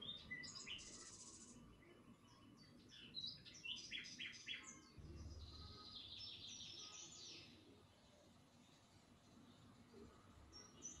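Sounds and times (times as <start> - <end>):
birds chirping: 0.0 - 7.6.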